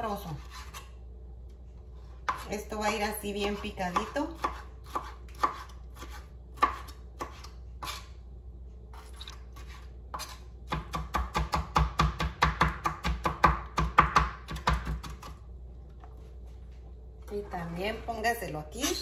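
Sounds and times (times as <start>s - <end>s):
knife chopping on cutting board: 2.2s - 8.1s, 9.6s - 15.4s.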